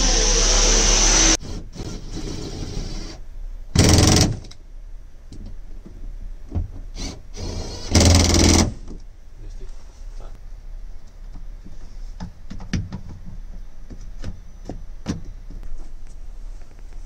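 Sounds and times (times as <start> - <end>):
cordless power driver: 0.0 - 1.4.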